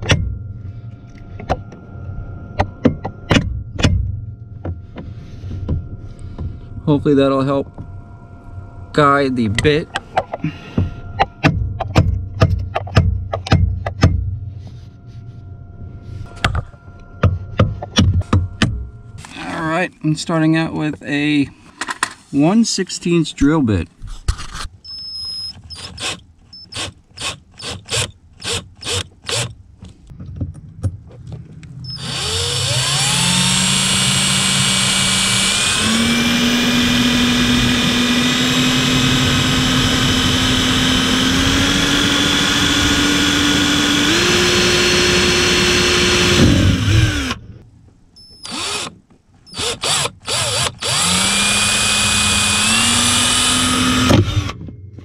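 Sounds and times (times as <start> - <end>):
cordless drill whining: 24.9 - 29.5, 31.8 - 47.4, 48.2 - 54.6.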